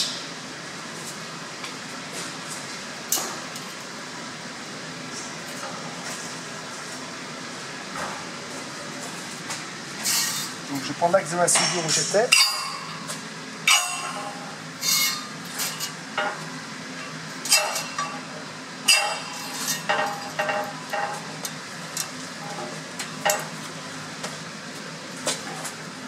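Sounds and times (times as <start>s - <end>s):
steady low hum: 0.0s - 26.0s
steel tools clinking and scraping: 10.0s - 13.1s, 13.7s - 16.4s, 17.0s - 18.3s, 18.9s - 21.3s.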